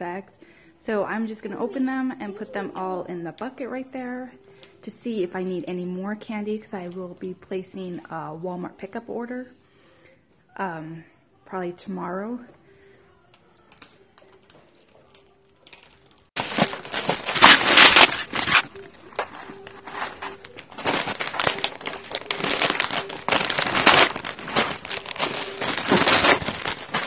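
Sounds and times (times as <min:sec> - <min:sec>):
plastic bags crinkling: 0:14.7 - 0:27.0
candy pouring into plastic bucket: 0:15.6 - 0:27.0.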